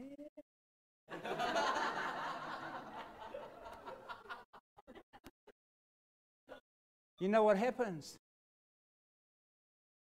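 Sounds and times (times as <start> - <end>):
audience laughing: 1.1 - 5.3.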